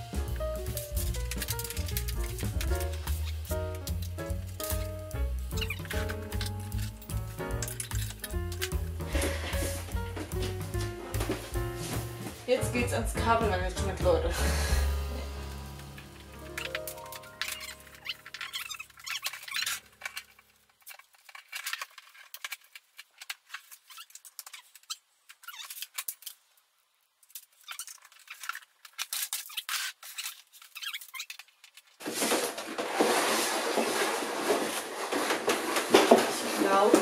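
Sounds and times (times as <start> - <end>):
loud dense rustling and scraping: 32.0 - 37.0.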